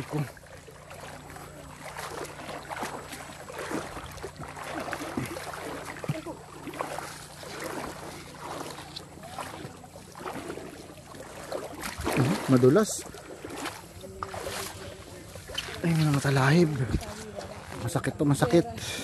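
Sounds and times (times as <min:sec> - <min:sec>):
footsteps wading through water: 0:00.0 - 0:19.0
water splashing and sloshing: 0:00.0 - 0:19.0.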